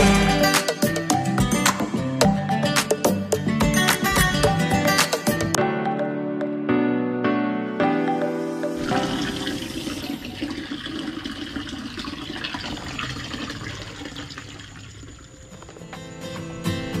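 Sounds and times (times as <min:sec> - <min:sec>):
background music: 0:00.0 - 0:10.9
water splashing into a pond: 0:08.8 - 0:15.5.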